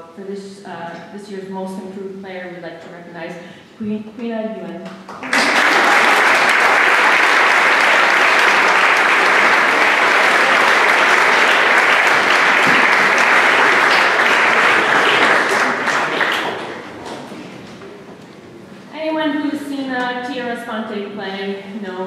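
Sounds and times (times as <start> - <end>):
audience applauding: 5.1 - 17.5.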